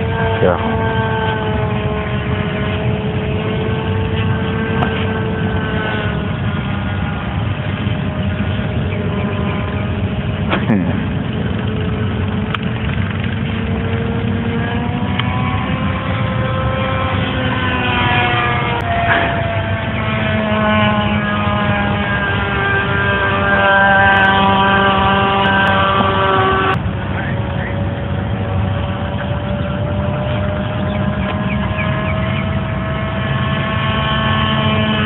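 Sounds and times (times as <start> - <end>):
low wind rumble: 0.0 - 35.0
model airplane motor droning: 0.0 - 35.0.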